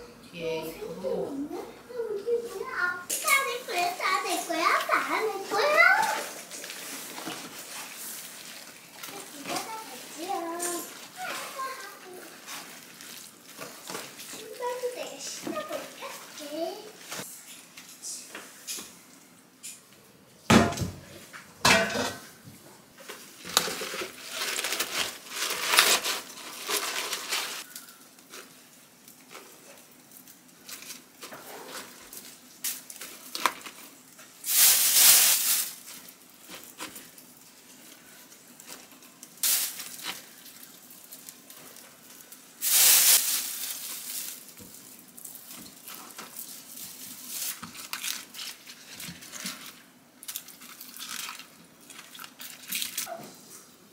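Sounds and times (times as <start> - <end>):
rustling bursts: 23.7 - 27.7, 34.4 - 36.5, 42.6 - 44.6.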